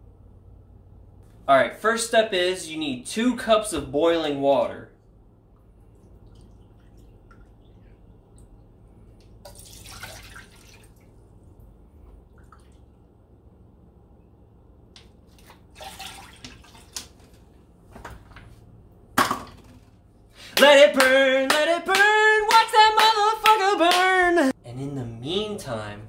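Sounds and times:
water pouring into plastic cup: 9.4s - 11.1s
water splashing: 9.4s - 11.4s, 15.3s - 17.4s.

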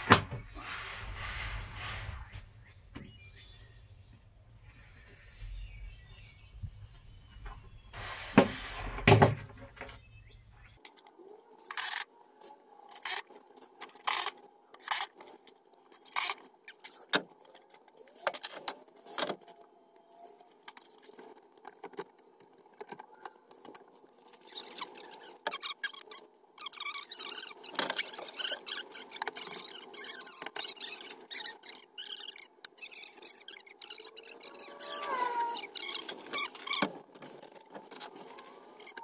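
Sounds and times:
clatters and scrapes of hand work: 7.5s - 10.1s, 10.8s - 39.0s.

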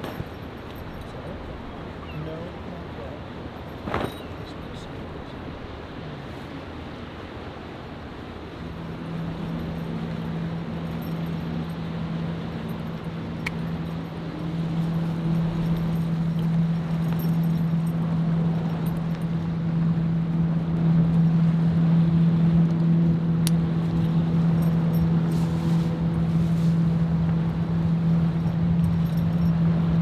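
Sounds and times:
engine hum: 0.0s - 30.0s
river noise: 0.0s - 30.0s
wind: 0.0s - 30.0s.

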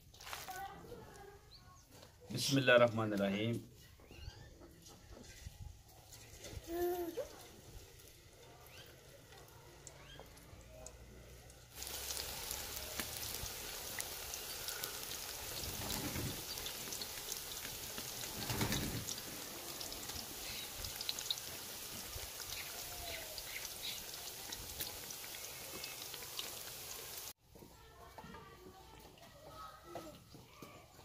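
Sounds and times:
batter sizzling in hot oil: 7.2s - 27.4s.

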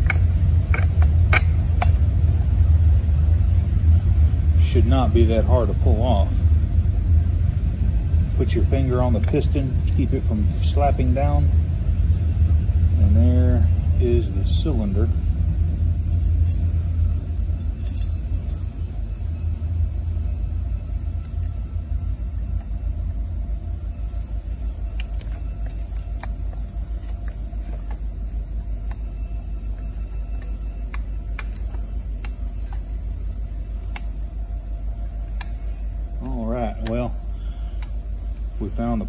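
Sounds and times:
engine parts clicking: 0.0s - 2.3s, 8.4s - 11.5s, 16.0s - 39.0s
low background drone: 0.0s - 39.0s.

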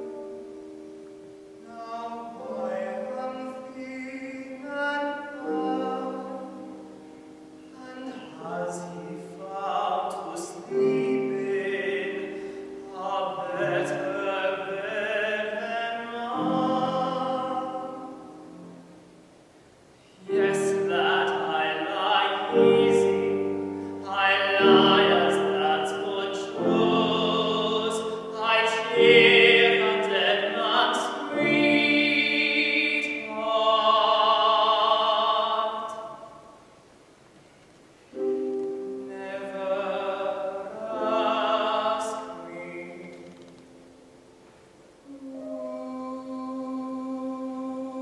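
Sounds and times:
grand piano accompaniment: 0.0s - 36.7s, 38.1s - 48.0s
tenor singing operatically: 1.6s - 19.0s, 20.2s - 36.6s, 39.0s - 43.5s.

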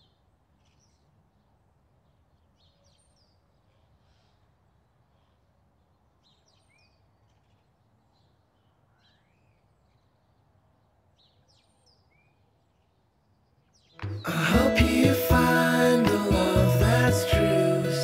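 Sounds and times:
loud music: 14.0s - 18.0s.

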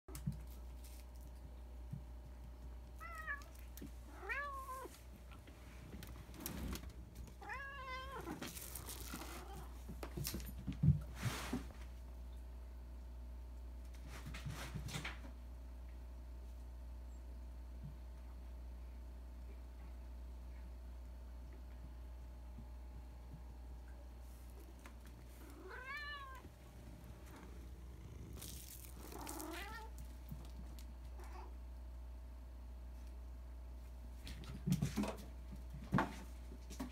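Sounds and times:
cat meowing: 3.0s - 3.5s, 4.1s - 4.9s, 7.4s - 8.4s, 25.5s - 26.4s, 29.1s - 29.9s.

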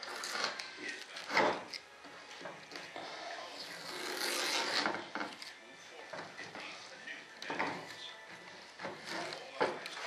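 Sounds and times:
rubbing scraping sound: 3.5s - 5.5s, 7.7s - 10.0s.

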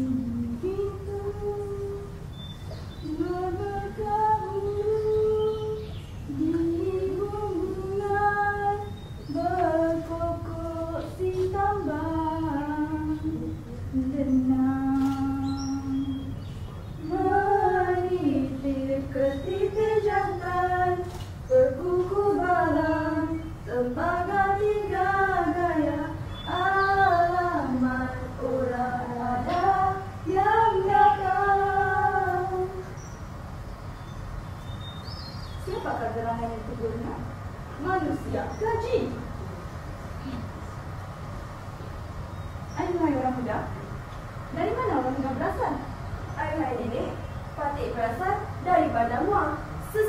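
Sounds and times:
woman singing slow melody: 0.0s - 16.4s, 17.0s - 33.0s.

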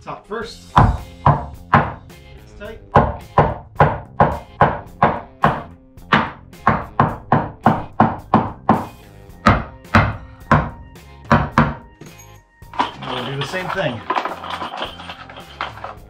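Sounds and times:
hammer striking wood: 0.8s - 2.0s, 2.9s - 11.9s.

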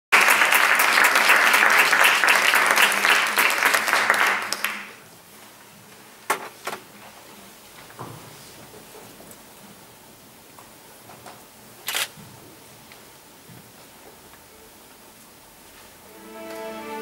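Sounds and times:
audience applause: 0.1s - 5.0s.

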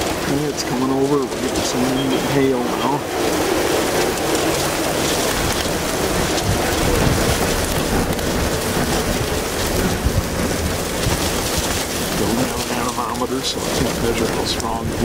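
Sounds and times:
hail and rain pelting a vehicle: 0.0s - 15.0s
high wind rumbling: 0.0s - 15.0s.

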